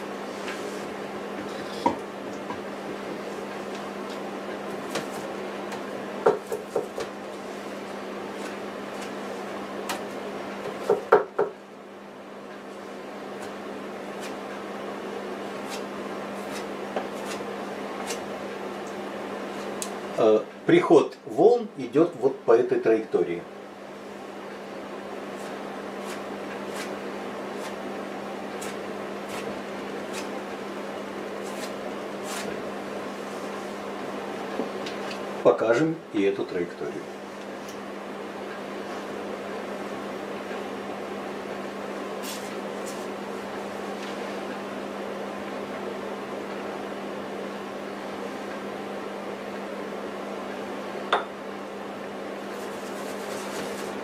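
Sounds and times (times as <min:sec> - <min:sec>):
steady low hum: 0:00.0 - 0:54.0
scratchy paint strokes on canvas: 0:52.5 - 0:54.0.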